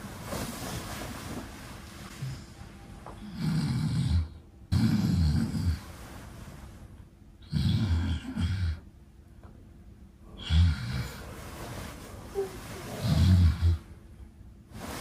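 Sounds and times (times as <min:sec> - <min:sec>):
quiet breaths: 0:00.3 - 0:15.0
man snoring loudly: 0:03.2 - 0:05.8, 0:07.4 - 0:08.8, 0:10.4 - 0:11.3.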